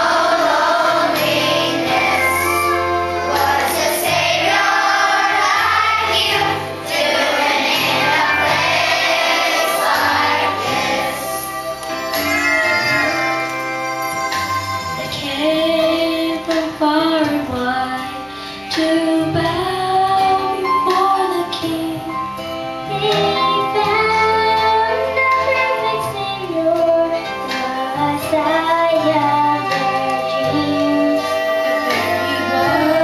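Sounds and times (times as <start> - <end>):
children's choir singing: 0.0 - 13.6, 22.9 - 33.0
instrumental accompaniment: 0.0 - 33.0.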